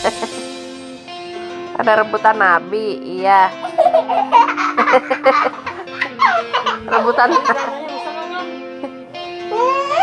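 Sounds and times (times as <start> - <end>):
song with long steady note: 0.0 - 2.8.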